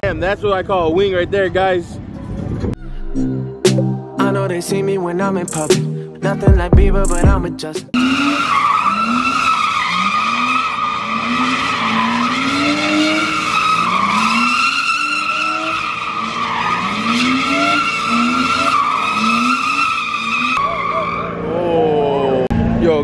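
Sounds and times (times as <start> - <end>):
car engine revving: 8.0 - 21.6
tyre squeal: 8.0 - 21.6.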